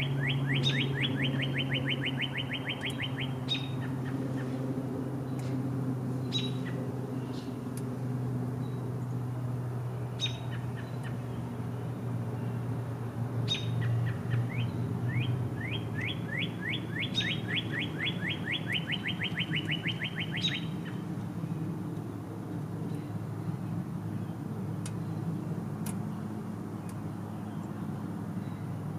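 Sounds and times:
steady low hum: 0.0 - 28.9
bird rising whistles and trill: 13.5 - 20.7.

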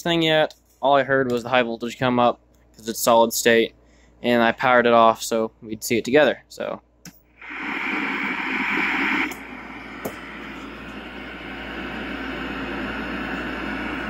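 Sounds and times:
television static hiss: 7.4 - 14.0.

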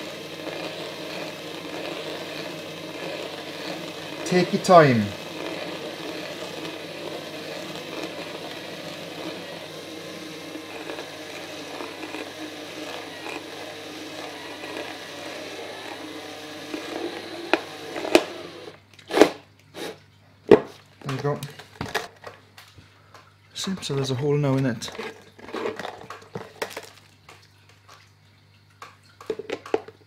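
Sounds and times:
cordless drill whirring: 0.0 - 19.4
drill bit scraping plastic: 0.0 - 20.0, 24.8 - 26.9.

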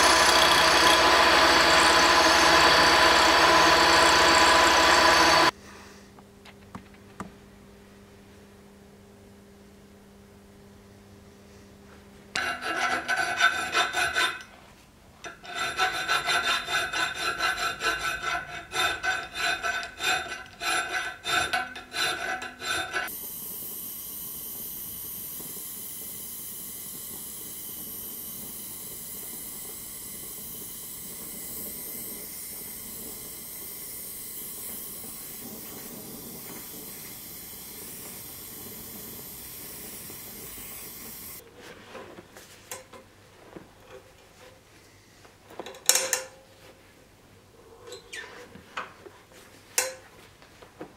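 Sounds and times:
hacksaw cutting steel: 0.0 - 5.5, 12.4 - 14.5, 15.3 - 41.4
gas torch flame hissing: 23.0 - 41.4.

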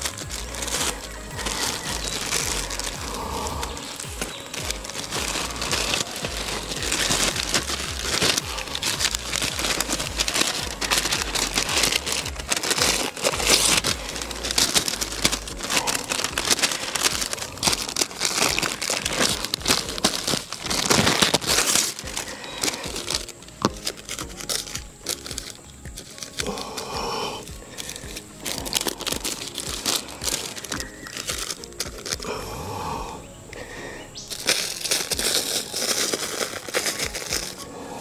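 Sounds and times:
soil crunching and scraping: 0.0 - 38.0.

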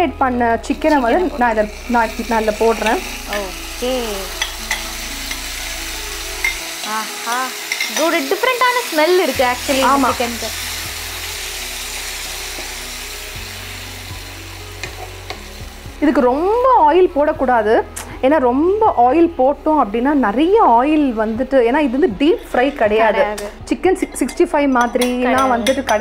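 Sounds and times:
chicken sizzling in hot oil: 0.6 - 16.7.

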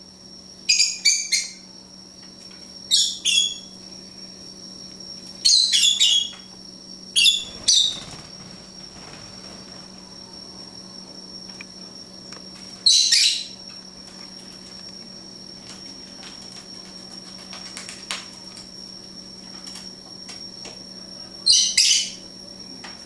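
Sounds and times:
lovebird shrill calls: 7.2 - 8.2.

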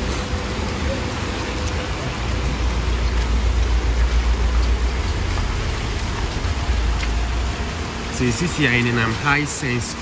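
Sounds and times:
heavy rain hiss: 0.0 - 10.0
deep low rumble: 2.7 - 8.0.

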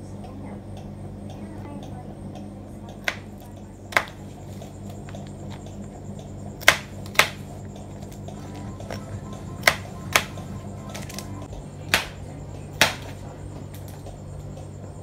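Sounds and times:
faint low hum: 0.0 - 15.0
knife chopping on cutting board: 3.9 - 4.2, 6.6 - 7.4, 8.8 - 11.3, 11.9 - 12.2, 12.8 - 13.2.

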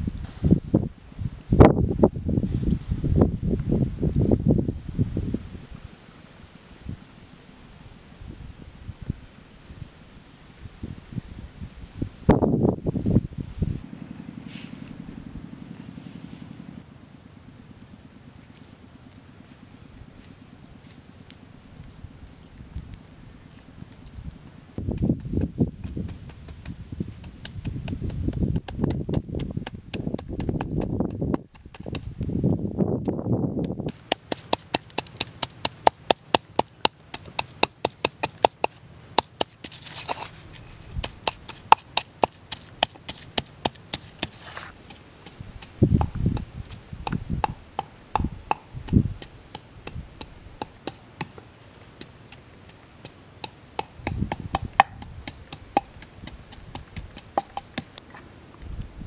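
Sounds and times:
wooden pestle pounding in mortar: 24.9 - 32.1, 33.6 - 39.8, 41.0 - 51.3, 53.0 - 57.9.

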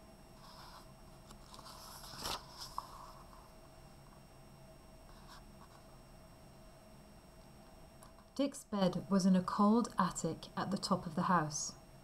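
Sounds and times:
book page turning rustle: 0.4 - 3.4.

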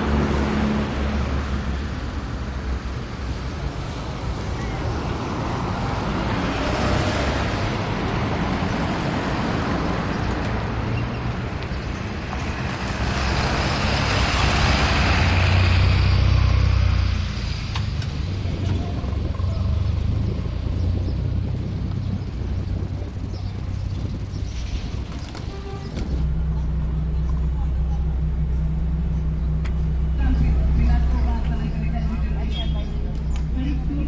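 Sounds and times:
surrounding traffic: 0.0 - 34.0
vehicle road and engine rumble: 0.0 - 34.0.

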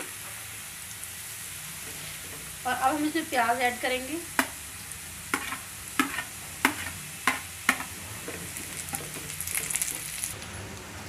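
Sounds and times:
stirring in a frying pan: 0.0 - 10.4
oil crackling and sizzling: 0.0 - 11.0
utensils knocking against a pan: 5.3 - 10.1.

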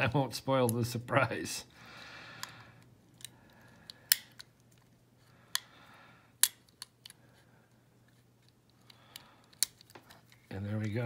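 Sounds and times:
lock picking metal clicks: 2.4 - 4.8, 6.4 - 7.2.

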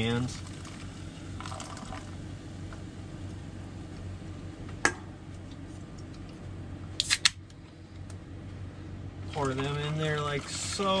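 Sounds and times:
low hum: 0.0 - 11.0
sharp click: 7.0 - 7.4
soda can pull-tab cracking open: 7.0 - 7.4.

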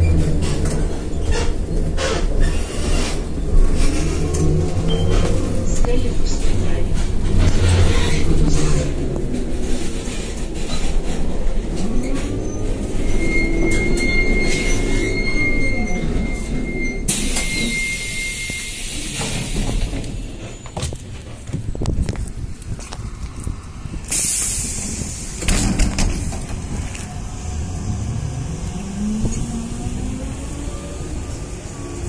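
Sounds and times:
compressed air hiss: 24.1 - 25.4.

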